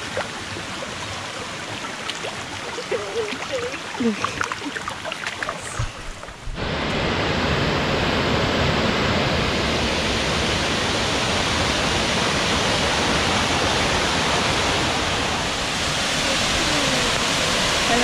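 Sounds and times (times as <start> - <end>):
waterfall rushing: 5.6 - 18.0.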